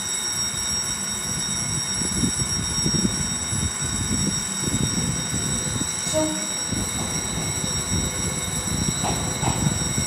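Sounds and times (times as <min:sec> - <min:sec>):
level crossing warning bell: 0:00.0 - 0:10.0
approaching train rumble: 0:02.0 - 0:10.0.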